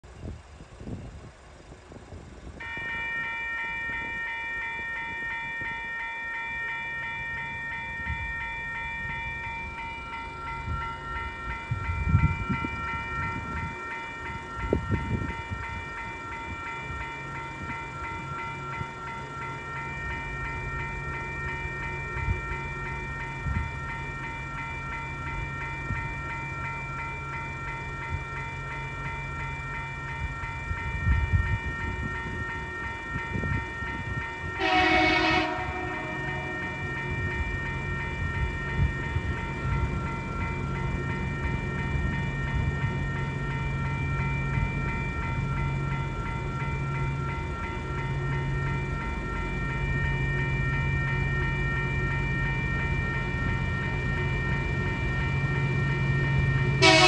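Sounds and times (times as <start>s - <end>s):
diesel locomotive engine: 0.0s - 57.0s
level crossing bell ringing: 2.6s - 57.0s
train horn blast: 34.6s - 36.9s, 56.8s - 57.0s.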